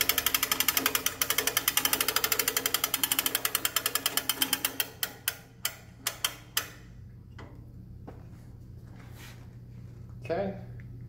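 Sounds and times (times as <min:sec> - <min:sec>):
hand-crank winch ratcheting: 0:00.0 - 0:06.8.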